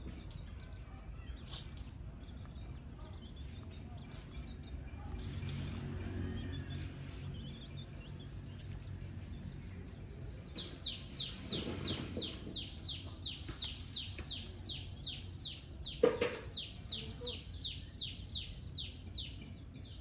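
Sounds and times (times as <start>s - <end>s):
bird chirping: 6.4s - 20.0s.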